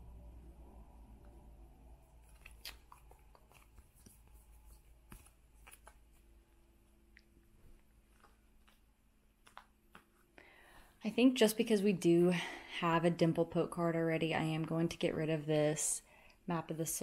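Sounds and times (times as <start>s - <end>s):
low room hum: 0.0s - 17.0s
cards clicking and rustling: 2.2s - 6.3s, 8.1s - 10.3s.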